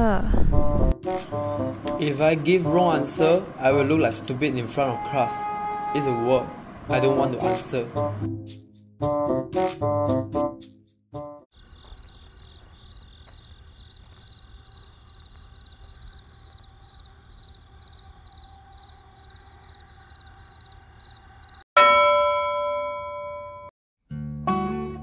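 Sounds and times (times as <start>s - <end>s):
faint crickets chirping: 11.5s - 21.6s.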